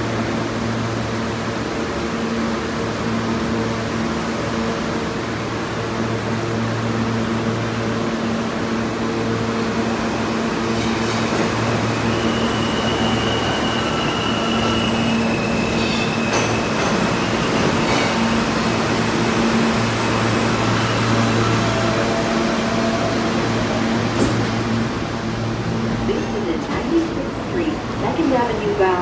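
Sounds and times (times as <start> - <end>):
subway wheels rumbling on rails: 0.0 - 29.0
high-pitched brake squeal: 11.9 - 17.5.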